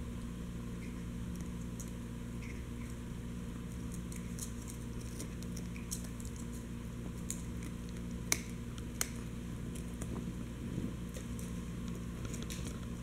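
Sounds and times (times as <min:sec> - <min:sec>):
steady low hum: 0:00.0 - 0:13.0
dog teeth clicking on bone: 0:03.8 - 0:10.1.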